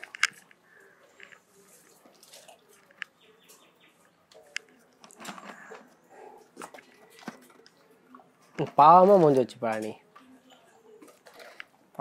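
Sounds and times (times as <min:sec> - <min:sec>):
faint bird chirps: 0:03.0 - 0:04.9.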